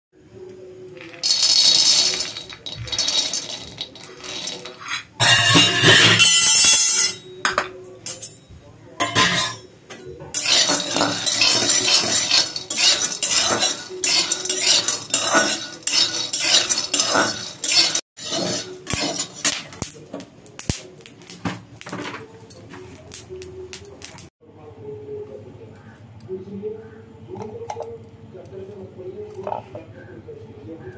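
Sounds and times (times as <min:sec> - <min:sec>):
peanuts rattling in metal pan: 0:01.0 - 0:06.5, 0:10.4 - 0:19.8
spatula scraping pan: 0:01.0 - 0:07.2, 0:09.0 - 0:09.6, 0:10.3 - 0:19.8.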